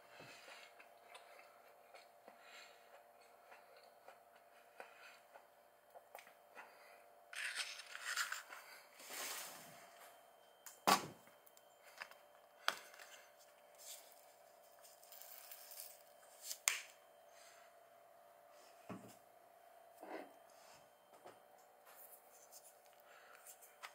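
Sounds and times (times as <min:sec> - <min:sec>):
rustling on tabletop: 0:09.0 - 0:10.0.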